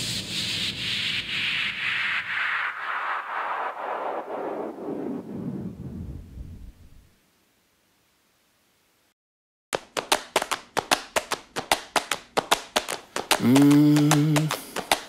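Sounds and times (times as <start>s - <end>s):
clap-like percussion hits: 9.8s - 15.0s.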